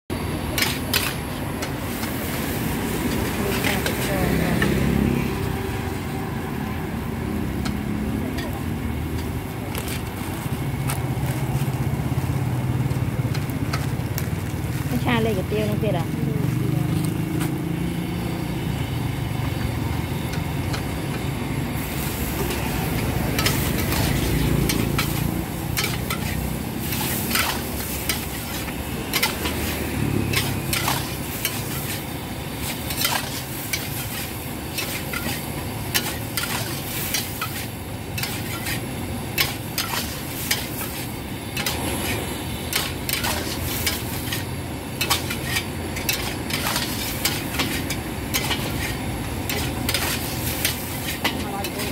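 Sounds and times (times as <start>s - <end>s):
noodles sizzling in a wok: 0.1s - 16.2s, 17.0s - 51.9s
metal spatula scraping a wok: 0.5s - 6.6s, 20.2s - 51.9s.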